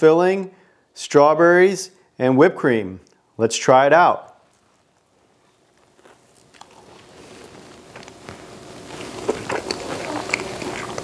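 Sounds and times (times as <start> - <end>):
man chewing with wet smacks: 4.4 - 11.0.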